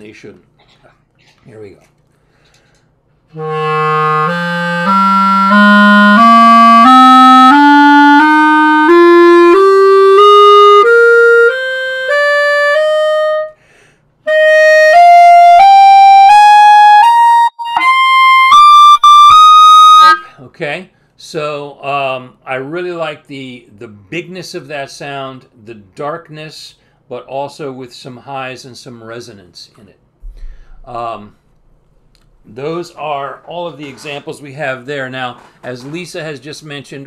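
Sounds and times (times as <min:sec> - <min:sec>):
clarinet playing ascending scale: 0:03.3 - 0:13.6, 0:14.3 - 0:20.3.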